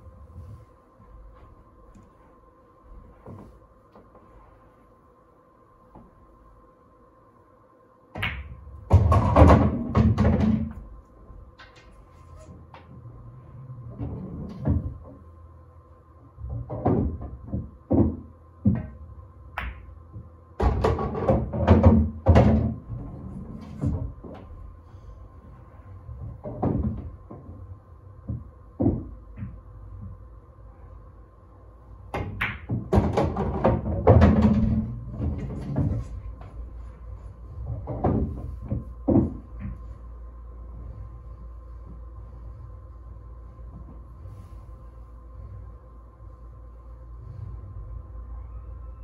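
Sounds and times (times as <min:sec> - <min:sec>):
pool balls clicking: 0:08.1 - 0:13.0, 0:16.4 - 0:24.8, 0:26.2 - 0:30.2, 0:32.1 - 0:39.9
cue striking ball: 0:08.2 - 0:10.8, 0:32.1 - 0:36.3.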